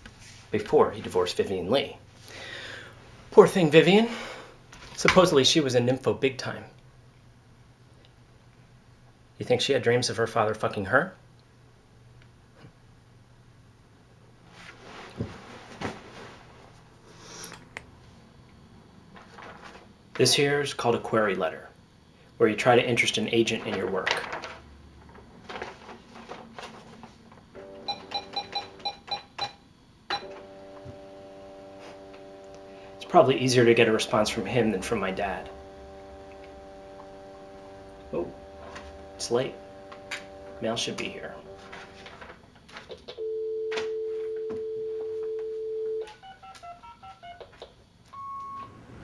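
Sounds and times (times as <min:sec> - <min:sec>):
short dialing beeps: 0:27.9 - 0:30.3, 0:48.1 - 0:48.8
steady line tone: 0:31.0 - 0:41.9
dial tone: 0:43.2 - 0:47.4, 0:48.2 - 0:48.8.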